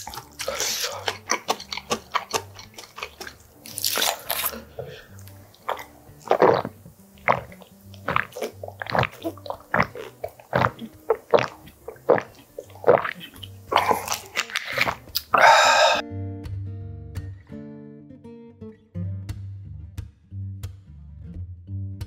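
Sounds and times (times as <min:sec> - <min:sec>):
person gulping water: 0:00.0 - 0:16.0
acoustic guitar music: 0:03.4 - 0:13.8, 0:16.0 - 0:19.3
voiced exhale: 0:04.5 - 0:05.2, 0:15.3 - 0:16.0.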